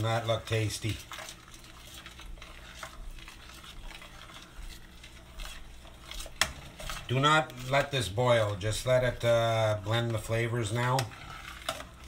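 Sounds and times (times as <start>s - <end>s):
spoon stirring thick sauce: 0.0s - 12.0s.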